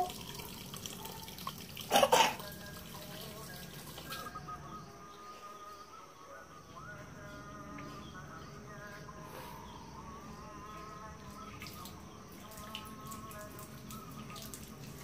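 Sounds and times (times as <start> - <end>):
water splashing from a tap: 0.0 - 4.3, 11.4 - 15.0.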